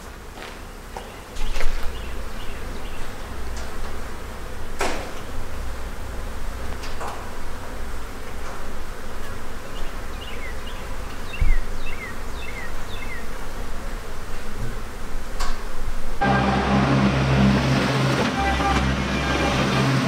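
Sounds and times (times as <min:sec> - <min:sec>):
loud steady hum: 0:00.0 - 0:20.0
tractor diesel engine running: 0:16.2 - 0:20.0.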